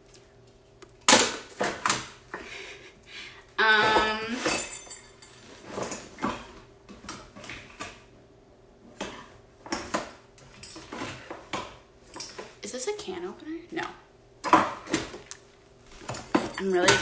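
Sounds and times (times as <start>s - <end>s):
metal utensils clattering: 16.0s - 17.0s.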